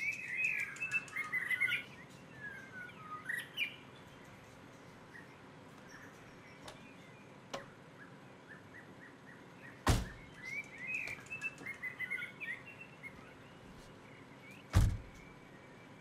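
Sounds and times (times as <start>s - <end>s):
faint birds chirping: 0.0s - 16.0s
car door shutting: 9.9s - 10.2s, 14.8s - 15.2s.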